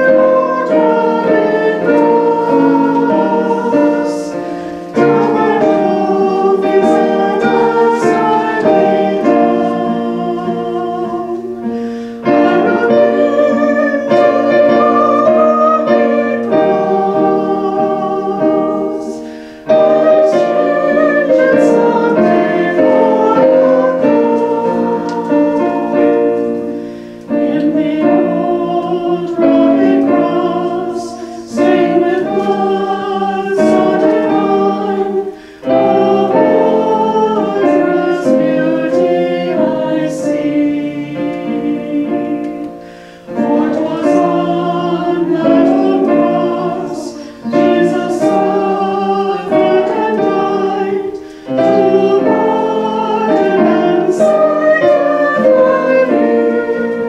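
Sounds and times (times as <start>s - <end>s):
hymn singing: 0.0s - 57.0s
piano accompaniment: 0.0s - 57.0s.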